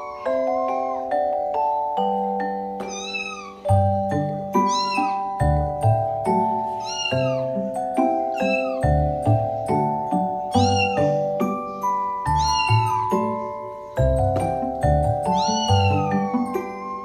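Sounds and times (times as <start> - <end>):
cat meow in music: 0.0 - 1.2, 2.8 - 5.4, 6.6 - 7.6, 8.2 - 9.2, 10.4 - 11.4, 12.2 - 13.4, 15.2 - 17.0.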